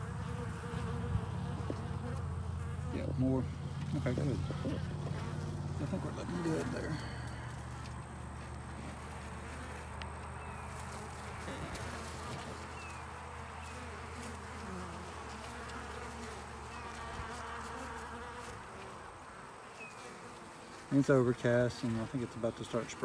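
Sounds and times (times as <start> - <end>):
honeybees buzzing: 0.0 - 23.0.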